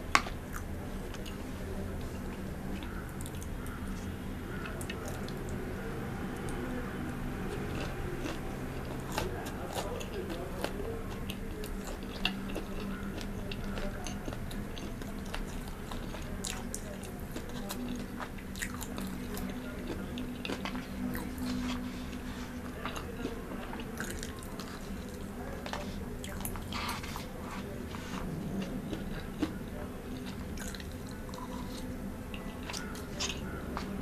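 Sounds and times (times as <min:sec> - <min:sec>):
chewing crunchy food: 0:00.0 - 0:34.0.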